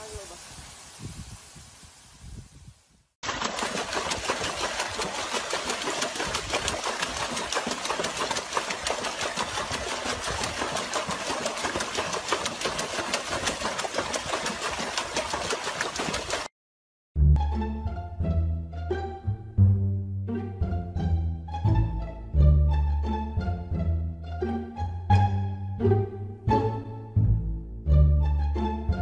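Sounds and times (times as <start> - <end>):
dog splashing in water: 3.2 - 16.5.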